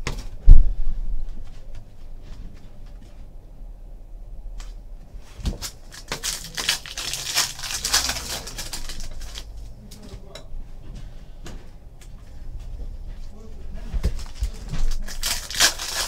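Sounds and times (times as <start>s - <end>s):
cards rustling: 5.2s - 10.1s, 14.0s - 16.0s
foil wrapper crinkling torn open: 5.5s - 9.5s, 14.2s - 16.0s.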